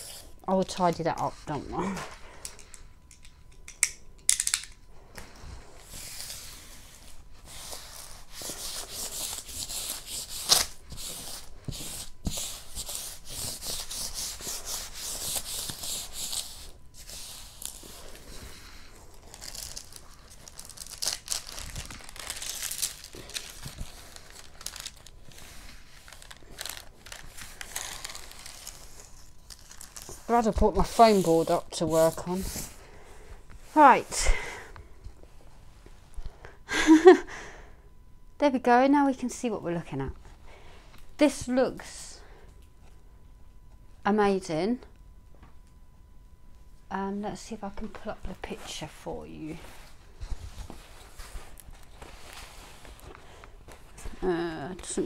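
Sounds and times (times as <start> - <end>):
canvas and plastic crinkling: 17.0 - 32.7.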